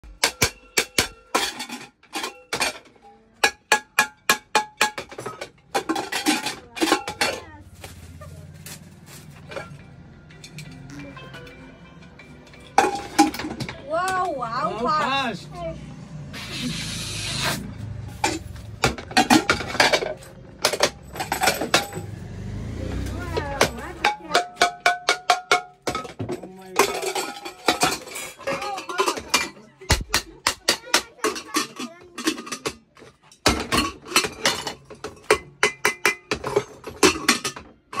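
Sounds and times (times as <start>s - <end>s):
metal pots clanking: 0.0s - 7.8s, 8.7s - 15.1s, 17.8s - 38.0s
pressure cooker hiss: 16.4s - 17.6s.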